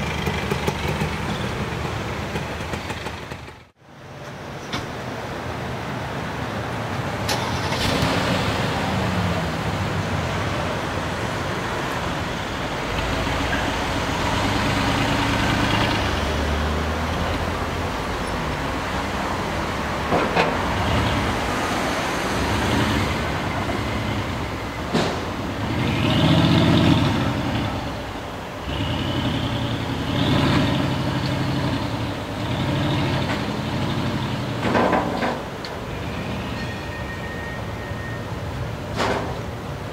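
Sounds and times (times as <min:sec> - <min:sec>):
vehicle engine revving: 0:12.9 - 0:18.0, 0:25.0 - 0:34.7.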